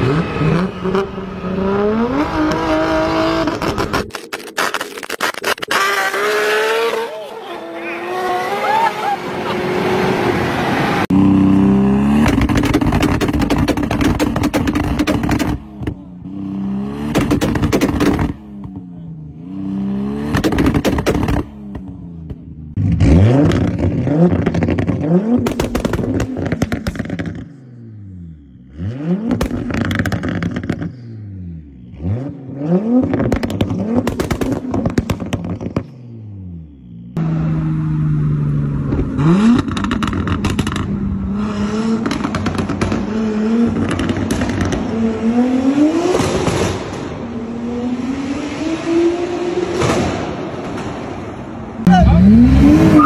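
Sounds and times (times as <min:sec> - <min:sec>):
car engine revving: 0:00.0 - 0:53.0
exhaust crackles and pops: 0:03.4 - 0:06.2, 0:12.1 - 0:16.0, 0:17.0 - 0:18.8, 0:20.3 - 0:27.6, 0:29.3 - 0:31.0, 0:32.9 - 0:36.0, 0:38.8 - 0:41.0, 0:42.0 - 0:44.9.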